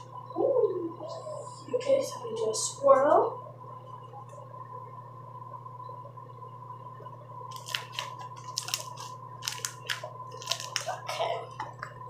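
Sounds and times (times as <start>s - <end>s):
exhaust fan humming: 0.0s - 12.0s
slime squeezed wet crackles: 7.6s - 11.2s.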